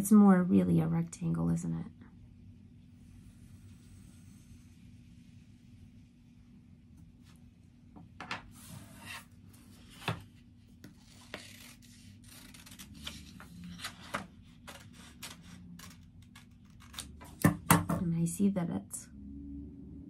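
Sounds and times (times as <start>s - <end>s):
scissors snipping paper: 11.1s - 13.4s.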